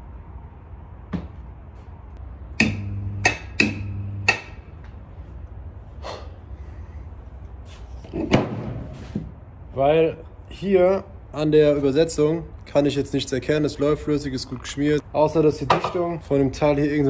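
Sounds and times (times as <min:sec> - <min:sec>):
electric motor humming: 0:02.6 - 0:04.3.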